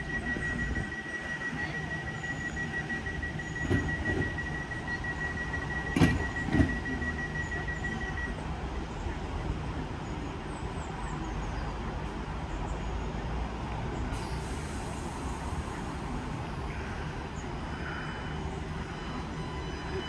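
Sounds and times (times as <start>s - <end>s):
train running hum: 0.0s - 8.9s.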